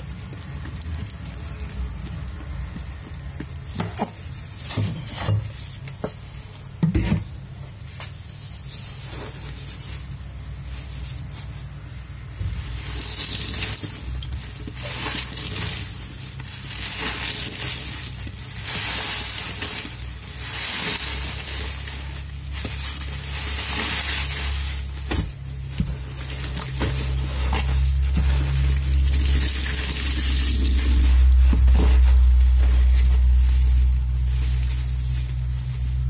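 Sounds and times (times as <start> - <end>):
suds crackling fizz: 0.0 - 4.6, 10.1 - 36.0
wet sponge squelches: 7.7 - 36.0.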